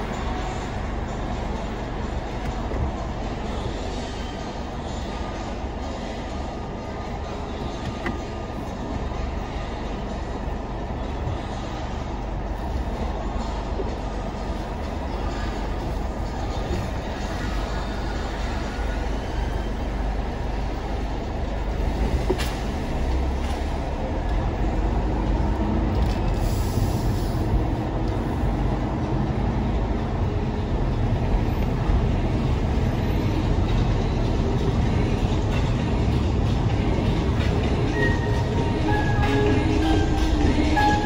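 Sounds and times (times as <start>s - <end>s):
car engine and tyres rumbling: 0.0s - 41.0s.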